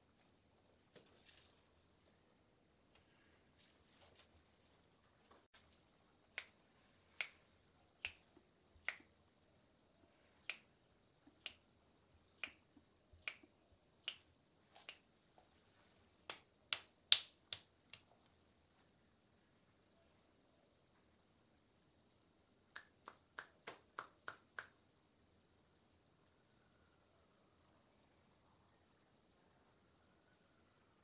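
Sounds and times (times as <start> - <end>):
knuckles snapping clicks: 6.3 - 9.2, 10.4 - 11.7, 12.4 - 15.1, 16.3 - 18.1, 22.7 - 24.8.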